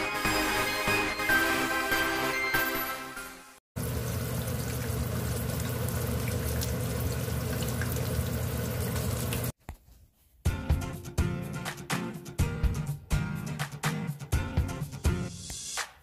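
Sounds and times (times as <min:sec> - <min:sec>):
oil sizzling and crackling: 0:03.8 - 0:09.6.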